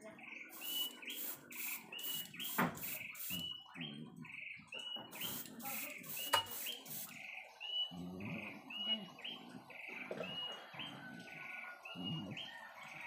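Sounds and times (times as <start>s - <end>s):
airbrush spraying hiss: 0.6s - 3.4s, 5.2s - 7.1s.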